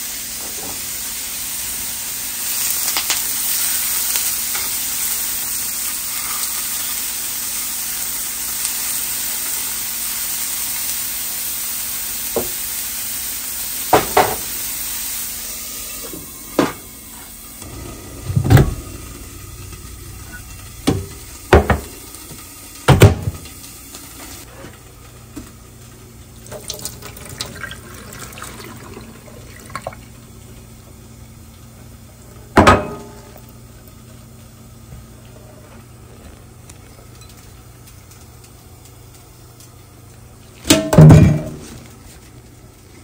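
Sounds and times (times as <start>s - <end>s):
steady hiss: 0.0s - 24.5s
cookware clanking: 32.6s - 33.2s.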